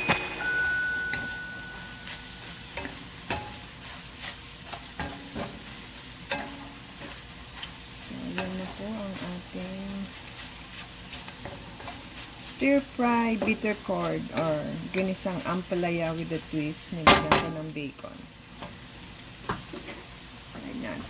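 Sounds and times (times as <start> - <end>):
food sizzling: 0.0 - 21.0
wooden spatula scraping a pan: 1.2 - 17.1.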